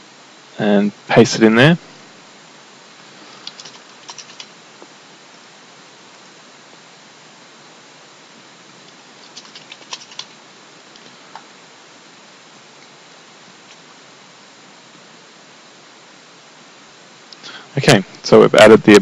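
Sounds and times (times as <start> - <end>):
faint steady hiss: 0.0 - 19.0
typing on computer keyboard: 3.4 - 4.5, 9.2 - 10.4.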